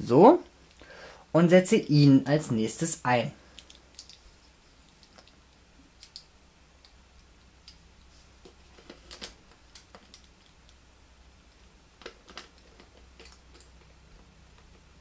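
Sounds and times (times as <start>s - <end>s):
plastic puzzle pieces clicking: 3.6s - 4.2s, 6.0s - 7.8s.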